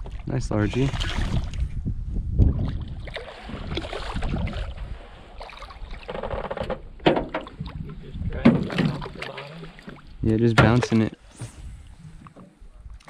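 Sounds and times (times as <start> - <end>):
sharp knocks: 8.4 - 9.1.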